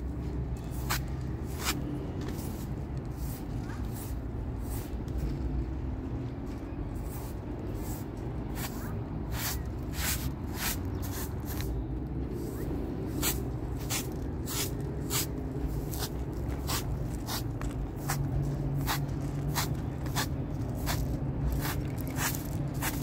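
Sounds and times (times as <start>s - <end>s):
broom sweeping a rug: 0.7s - 5.4s, 7.0s - 11.7s, 12.4s - 23.0s.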